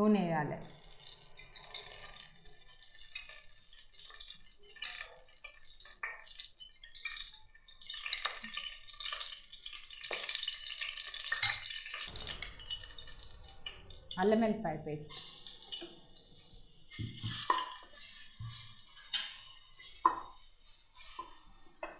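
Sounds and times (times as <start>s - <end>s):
oil hissing in hot pan: 0.6s - 14.1s, 15.0s - 21.8s
spoon clinking and scraping bowl: 16.9s - 21.5s.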